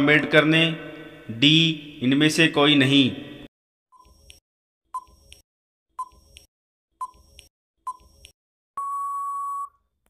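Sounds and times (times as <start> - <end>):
long steady beep: 8.8 - 9.8
short beeps: 8.8 - 9.8.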